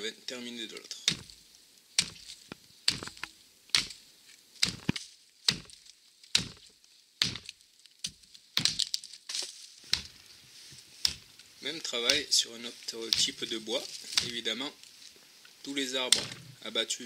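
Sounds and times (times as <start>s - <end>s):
axe chopping into tree: 1.1s - 1.4s, 2.0s - 4.0s, 4.6s - 9.0s, 9.9s - 10.2s, 11.0s - 11.4s, 12.0s - 12.4s, 13.1s - 13.5s, 14.1s - 14.5s, 16.1s - 16.5s.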